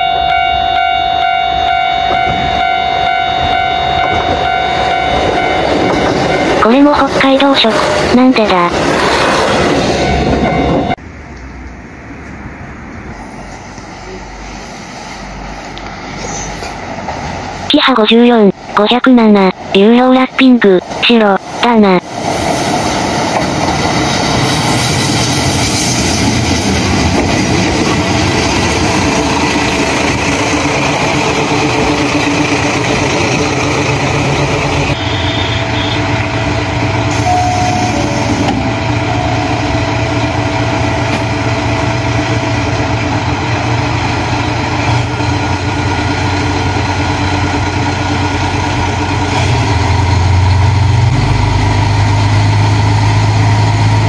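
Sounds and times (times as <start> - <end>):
railcar rolling over rails: 0.1 - 17.7, 20.8 - 54.0
diesel engine idling: 38.6 - 54.0.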